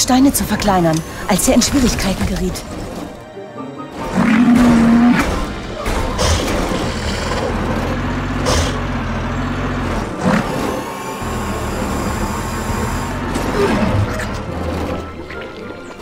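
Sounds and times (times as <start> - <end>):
low engine rumble: 5.0 - 16.0.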